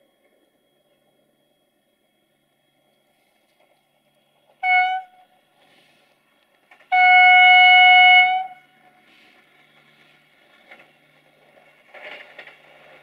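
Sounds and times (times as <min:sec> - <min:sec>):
train horn blasts: 0:04.6 - 0:05.4, 0:06.8 - 0:09.0.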